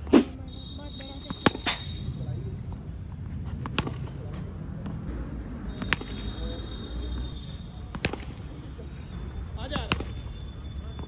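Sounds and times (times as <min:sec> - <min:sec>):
cricket bat hitting balls: 0:00.0 - 0:08.9, 0:09.6 - 0:11.0.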